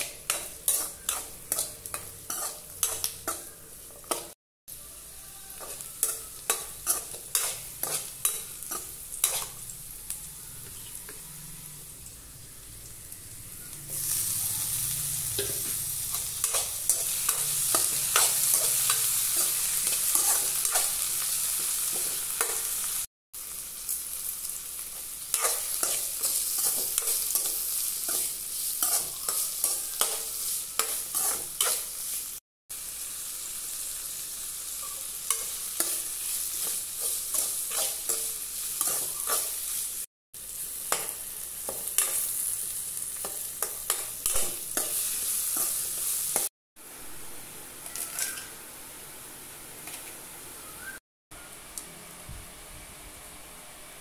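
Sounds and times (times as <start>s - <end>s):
metal spatula scraping a pan: 0.0s - 4.2s, 5.5s - 9.7s, 15.3s - 22.7s, 25.3s - 32.1s, 34.9s - 39.9s
vegetables sizzling in oil: 0.0s - 54.0s.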